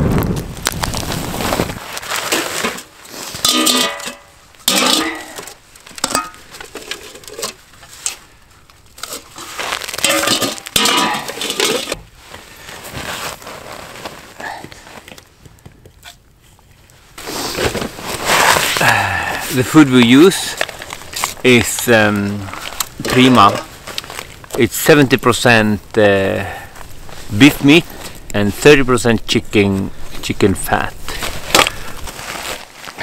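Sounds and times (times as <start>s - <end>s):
steel bowls clinking and clattering: 2.7s - 8.2s, 9.0s - 12.0s, 20.3s - 23.8s.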